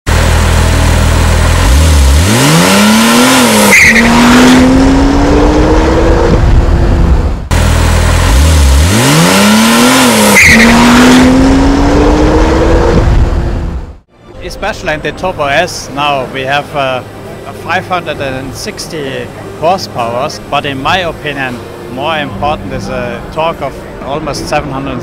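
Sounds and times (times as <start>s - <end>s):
car engine accelerating hard: 0.1s - 14.0s.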